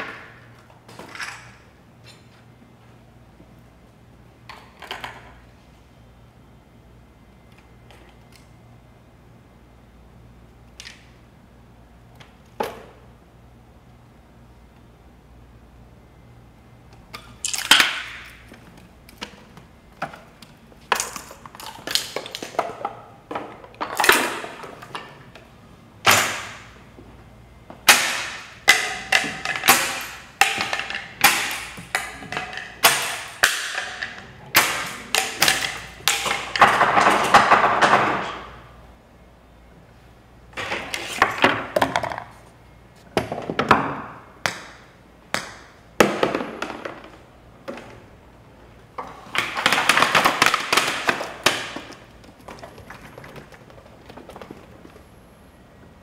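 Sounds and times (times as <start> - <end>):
balls rolling along tracks: 49.0 - 55.4.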